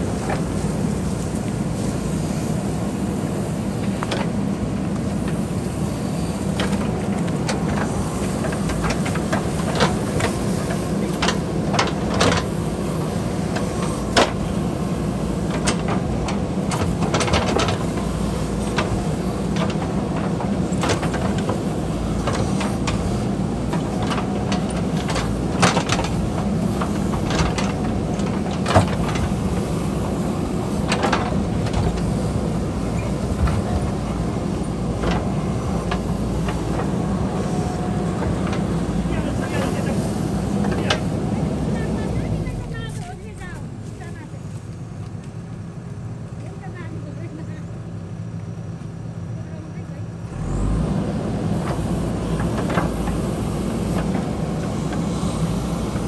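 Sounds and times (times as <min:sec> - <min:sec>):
diesel engine running under load: 0:00.0 - 0:56.0.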